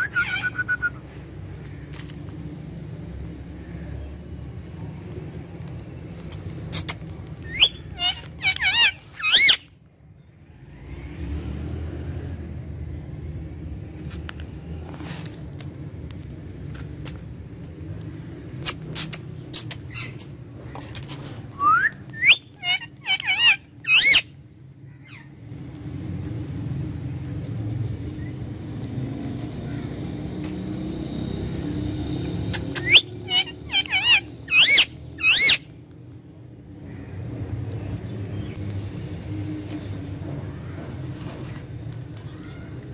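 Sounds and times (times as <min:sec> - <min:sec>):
parakeet calling: 0:00.0 - 0:01.0, 0:06.7 - 0:09.7, 0:21.6 - 0:24.3, 0:32.6 - 0:35.7.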